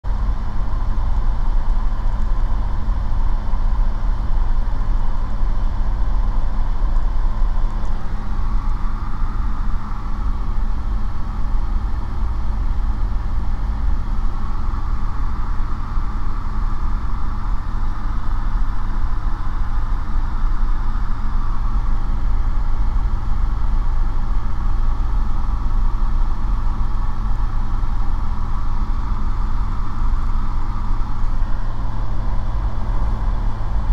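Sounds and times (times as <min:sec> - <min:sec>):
light aircraft engine drone: 0:00.0 - 0:33.9.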